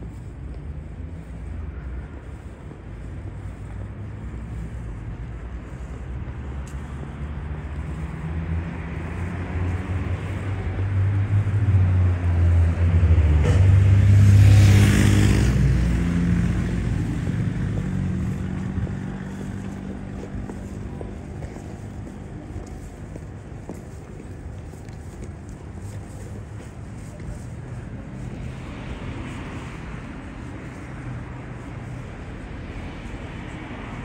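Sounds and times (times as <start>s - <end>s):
car engine hum: 0.0s - 34.0s.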